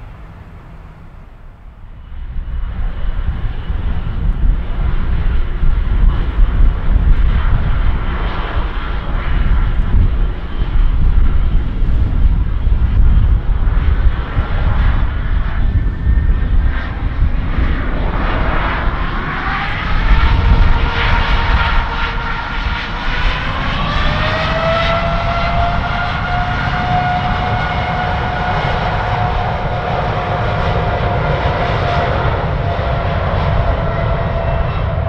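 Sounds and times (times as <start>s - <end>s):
jet engine whine rising: 0.0s - 35.0s
jet engines rumbling: 0.0s - 35.0s.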